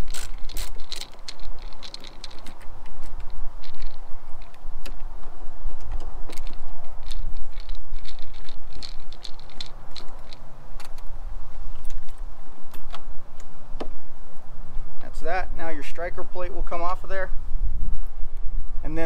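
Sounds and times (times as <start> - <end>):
screwdriver metallic clicks and scrapes: 0.0 - 13.5
steady low rumble: 0.0 - 19.0.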